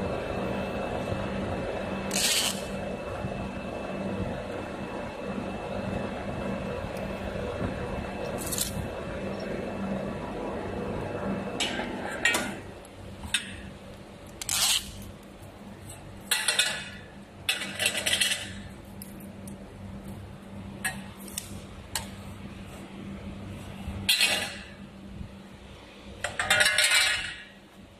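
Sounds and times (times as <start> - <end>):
pipe bending machine humming: 0.0 - 27.9
metal tube clinks and scrapes: 16.3 - 18.6.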